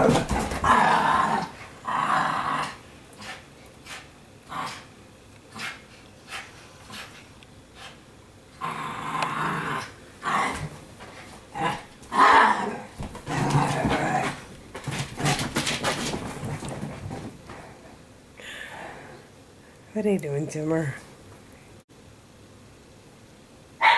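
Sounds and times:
dogs play-growling: 0.0 - 4.9, 8.5 - 17.9.

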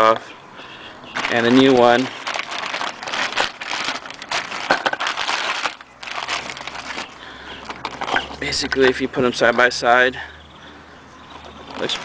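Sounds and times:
plastic packaging crinkling: 1.2 - 8.6, 11.3 - 12.0.

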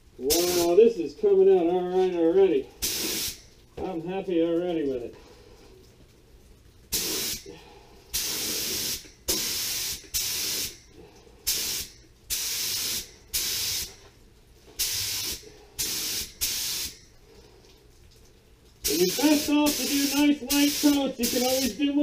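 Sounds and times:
spray gun hissing: 0.3 - 0.8, 2.8 - 3.4, 6.9 - 7.5, 8.2 - 10.8, 11.5 - 14.0, 14.8 - 17.0, 18.9 - 21.9.

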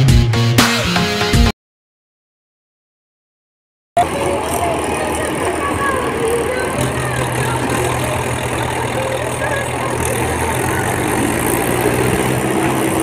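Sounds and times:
diesel tractor engine idling: 4.0 - 13.0.

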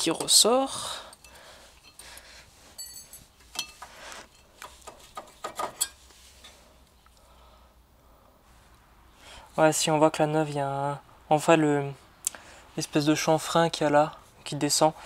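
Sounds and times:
light metal clicks and scrapes: 1.1 - 7.2.

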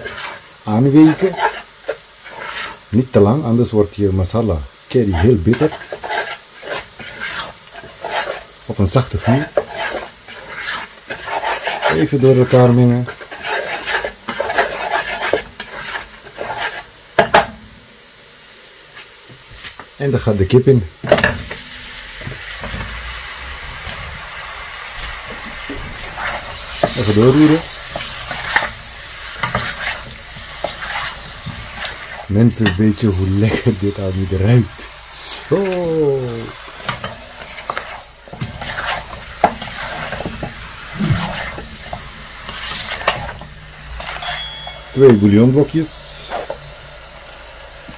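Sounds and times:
spatula scraping a pot: 0.0 - 2.9, 5.1 - 17.0, 25.6 - 34.9, 36.6 - 45.1
soft sizzle of frying spices: 0.0 - 47.9.

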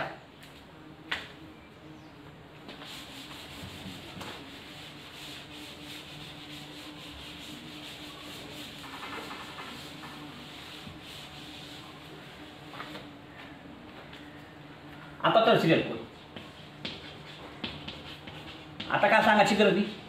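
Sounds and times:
eraser rubbing chalkboard: 2.6 - 13.1, 15.6 - 20.0.

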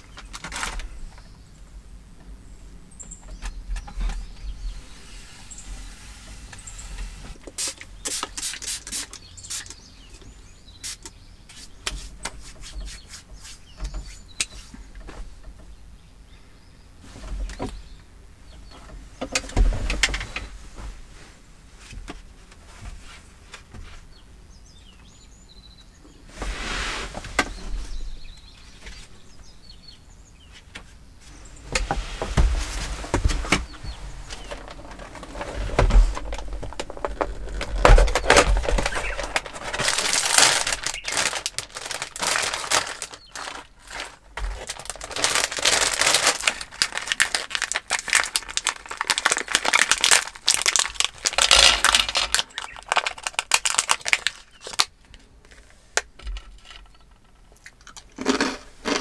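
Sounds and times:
birds chirping faintly: 0.0 - 57.7
cloth and paper rustling: 31.3 - 54.9.

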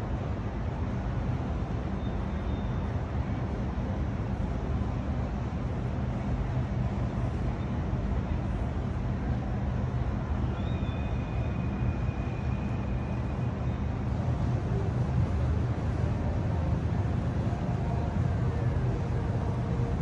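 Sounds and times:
distant engines and traffic rumble: 0.0 - 20.0.

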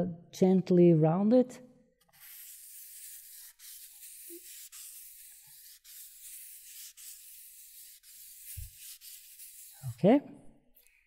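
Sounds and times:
sandpaper rubbing: 2.1 - 10.0.

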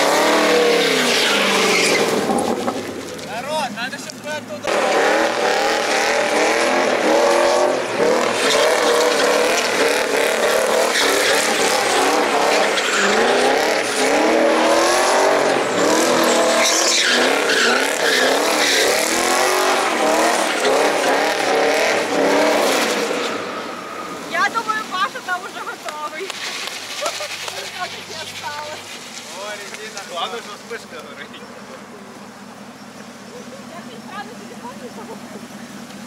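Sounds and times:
car engine revving hard: 0.0 - 2.8, 4.6 - 24.8
tyres screeching on tarmac: 0.0 - 36.0.

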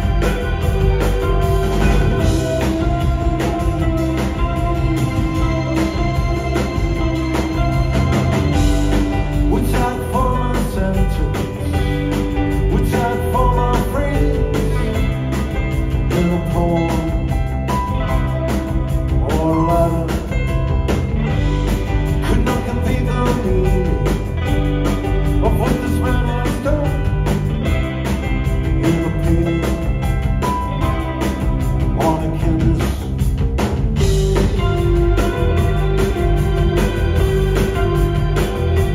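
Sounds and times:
drums: 0.0 - 38.9
electric bass: 0.0 - 38.9
electric guitar: 0.0 - 38.9
keyboard: 0.0 - 38.9
person singing lead vocal: 8.5 - 15.2, 15.9 - 17.6, 19.1 - 20.6, 22.2 - 24.4, 25.2 - 27.2, 28.6 - 30.2, 31.8 - 33.3.

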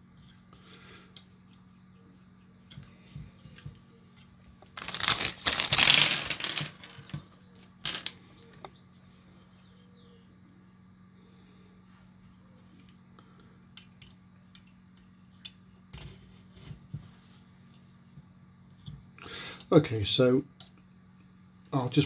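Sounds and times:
rustle of handling: 3.2 - 7.0
small parts clicking: 3.6 - 8.7.

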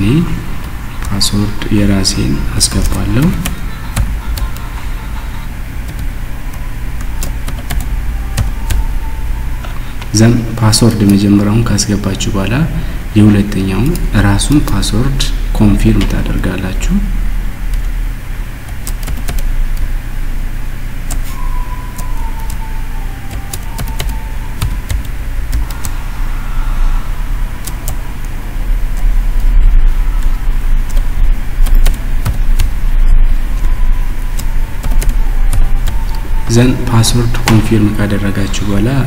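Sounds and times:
low hum: 0.0 - 39.0
keyboard keystrokes: 18.7 - 19.9, 30.9 - 32.7.

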